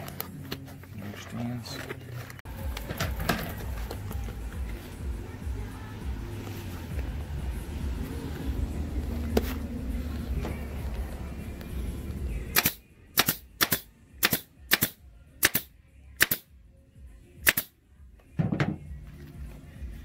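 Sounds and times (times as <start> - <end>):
staple gun firing: 12.6 - 16.5, 17.4 - 17.7.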